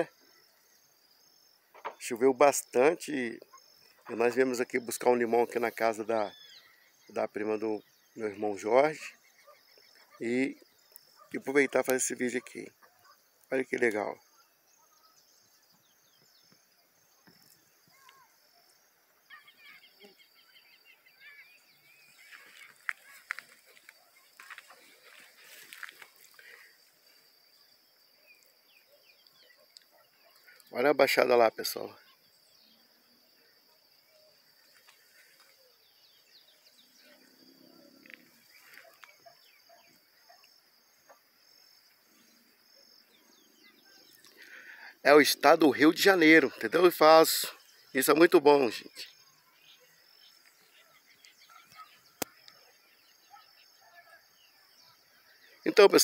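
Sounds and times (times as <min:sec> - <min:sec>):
small birds chirping: 0:00.0 - 0:56.0
high insect drone: 0:14.2 - 0:29.9.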